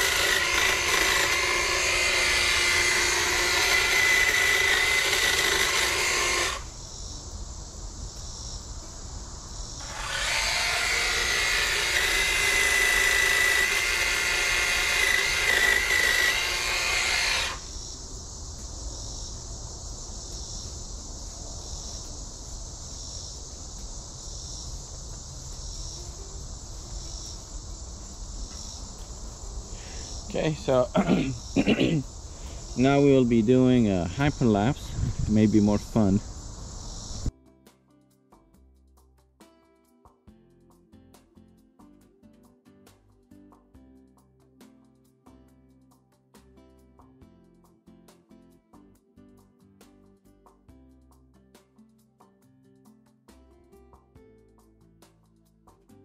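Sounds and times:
hedge trimmer whining: 0:00.0 - 0:06.8, 0:09.8 - 0:17.7, 0:29.7 - 0:35.1
insects chirping: 0:00.0 - 0:37.3.

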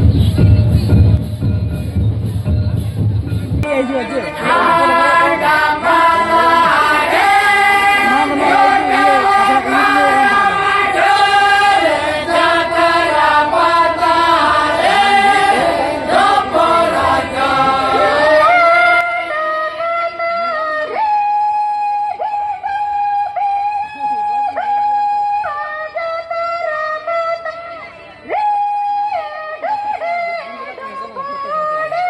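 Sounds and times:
group of voices singing: 0:04.2 - 0:20.0.

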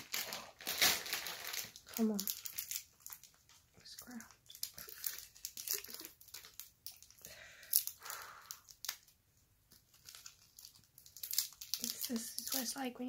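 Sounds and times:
sweet wrapper crinkling: 0:00.0 - 0:13.0.

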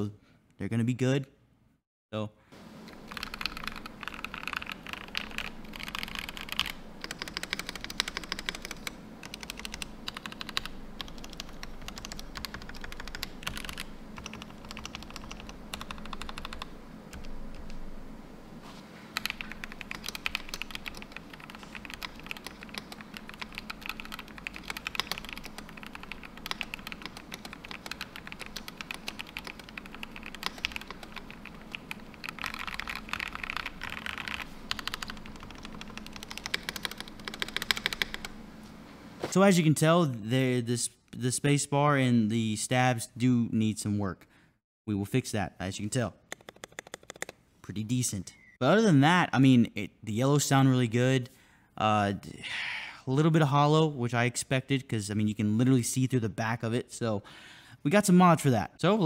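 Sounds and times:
mechanical keyboard keystrokes: 0:03.0 - 0:17.8, 0:19.2 - 0:38.3.

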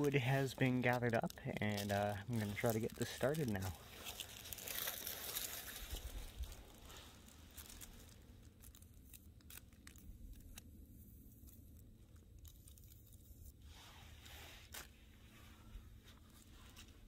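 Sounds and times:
dry leaves crinkling and rustling: 0:00.0 - 0:10.6.

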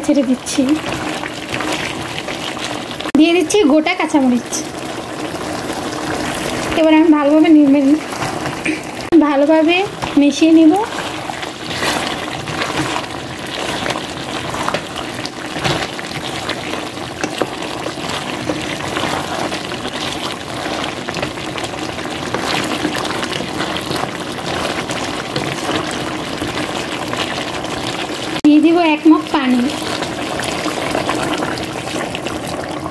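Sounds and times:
curry bubbling in a pot: 0:00.0 - 0:32.9
wooden spatula scraping a pot: 0:05.6 - 0:28.0.

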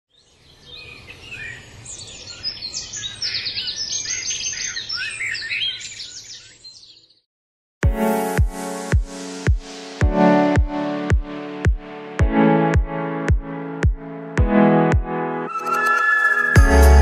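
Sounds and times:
small birds chirping: 0:00.1 - 0:07.3
electronic music with heavy beat: 0:07.8 - 0:17.0.

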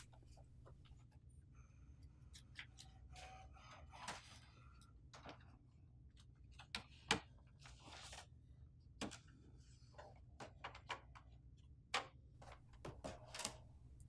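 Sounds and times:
soft paper rustle: 0:06.1 - 0:08.6.

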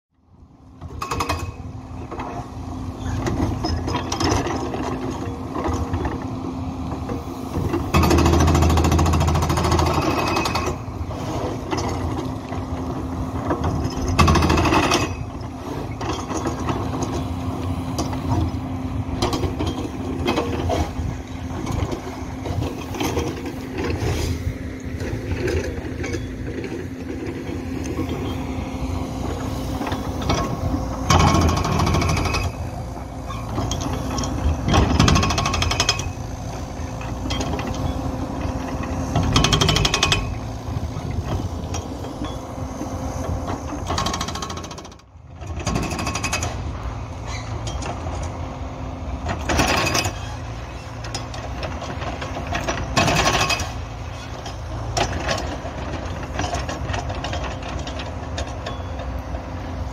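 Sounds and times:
excavator engine hum: 0:00.1 - 0:59.9
hydraulic breaker hammering concrete: 0:07.6 - 0:10.9, 0:14.0 - 0:15.3, 0:31.1 - 0:32.6, 0:52.6 - 0:53.8.

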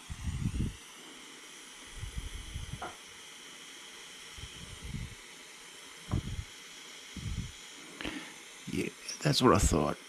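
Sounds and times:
soldering torch hissing: 0:00.0 - 0:10.0
soft low thumps: 0:06.1 - 0:06.4, 0:07.2 - 0:07.5.

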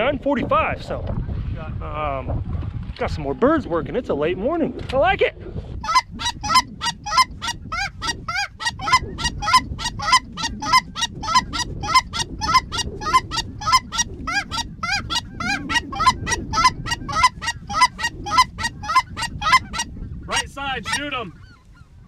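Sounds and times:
goose calls clucking and honking: 0:05.8 - 0:22.0.

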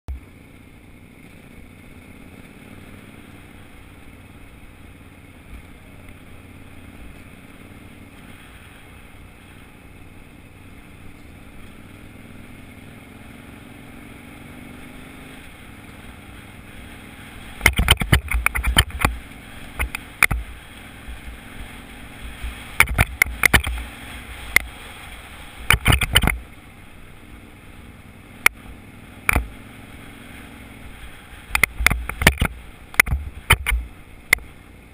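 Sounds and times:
muffled motorcycle engine drone: 0:00.1 - 0:34.9
camera knocks and rattles: 0:17.6 - 0:19.2, 0:19.8 - 0:20.4, 0:22.8 - 0:23.8, 0:25.7 - 0:26.4, 0:31.6 - 0:33.8.

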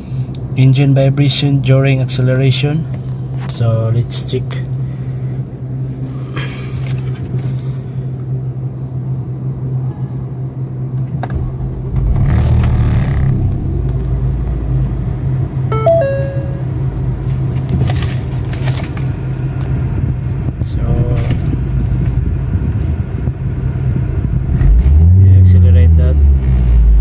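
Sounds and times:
low engine rumble: 0:00.0 - 0:27.0
car engine idling: 0:04.7 - 0:24.5
short electronic tone: 0:15.7 - 0:16.8.

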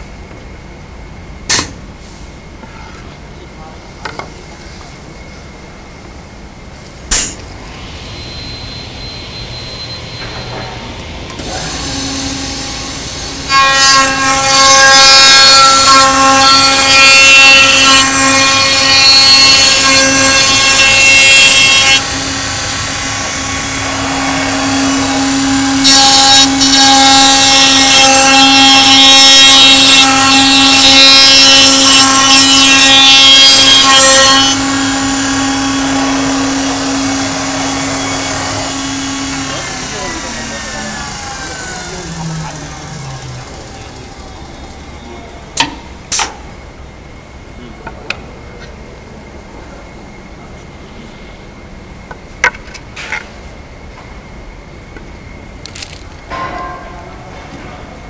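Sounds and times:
spindle motor whining: 0:07.5 - 0:45.6
cutter milling into wood: 0:11.4 - 0:44.6.

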